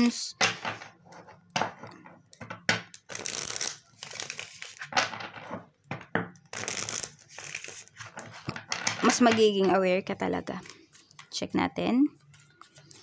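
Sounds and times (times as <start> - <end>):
cards being shuffled: 3.0 - 5.0, 6.5 - 9.2.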